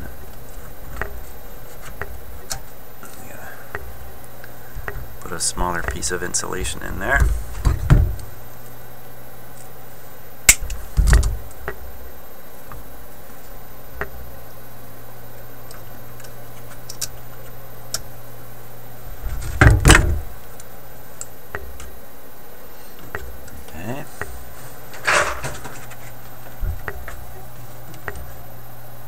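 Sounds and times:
steady low hum: 0.0 - 29.0
knocks on metal chassis: 7.1 - 8.3, 19.2 - 20.3.

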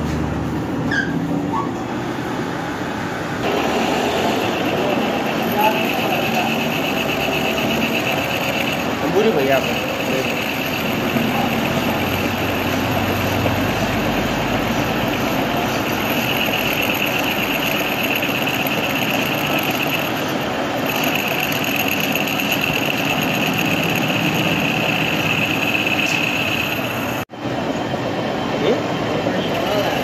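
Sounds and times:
metal lathe running: 2.2 - 30.0
high cutting tone: 3.4 - 27.3.

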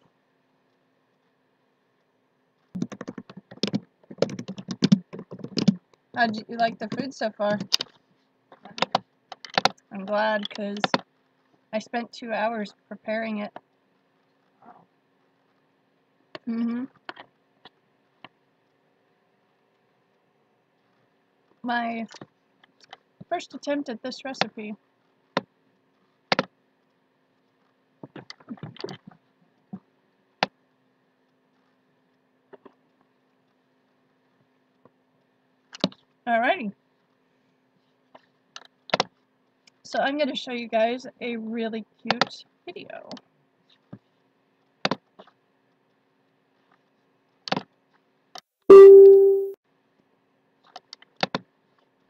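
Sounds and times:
electronic alert chime: 48.7 - 49.6.

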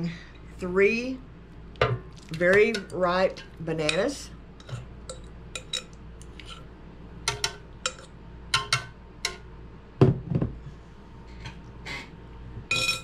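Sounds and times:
fork clinking against glass bowl: 3.9 - 6.0, 7.3 - 9.4, 12.7 - 13.0.

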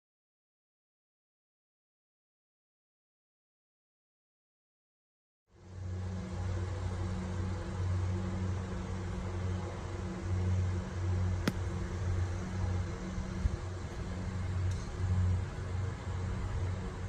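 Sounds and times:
golf club striking sand: 11.4 - 12.1.

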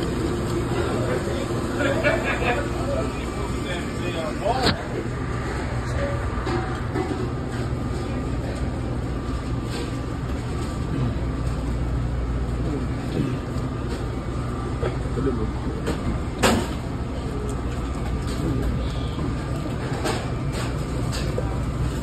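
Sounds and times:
faint steady whine: 0.0 - 22.0
kitchen equipment humming: 0.0 - 22.0.

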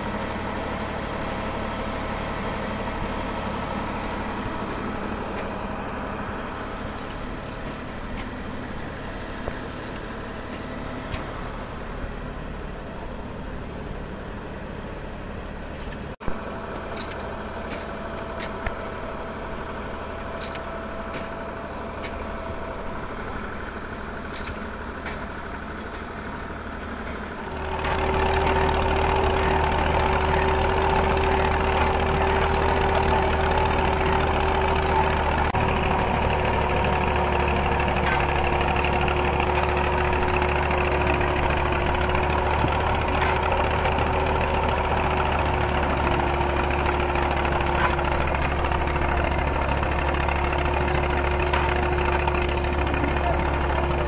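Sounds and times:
machine engine humming: 0.0 - 54.0
auger whine: 27.0 - 54.0.

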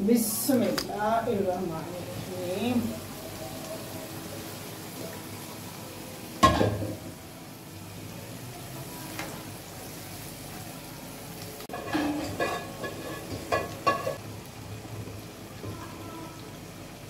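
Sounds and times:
food sizzling in a frying pan: 0.0 - 17.0
spoon stirring and scraping pan: 11.7 - 14.2.

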